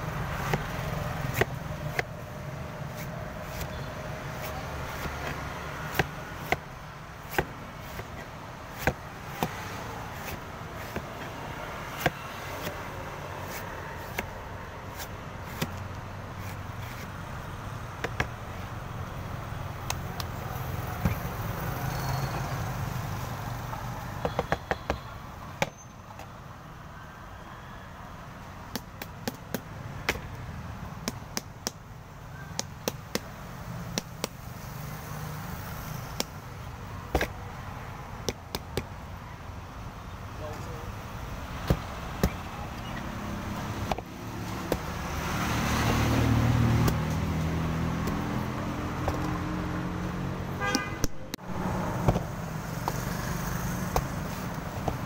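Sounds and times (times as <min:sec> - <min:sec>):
cleaver chopping coconut husk: 0:00.1 - 0:17.3, 0:18.0 - 0:18.6, 0:28.7 - 0:31.9, 0:32.5 - 0:37.5, 0:38.2 - 0:39.0, 0:40.5 - 0:50.0, 0:50.6 - 0:55.0.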